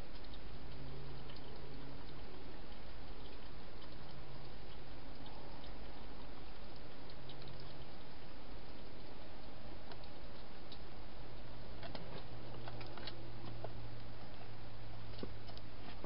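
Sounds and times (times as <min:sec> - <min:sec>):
microphone hiss: 0:00.0 - 0:16.0.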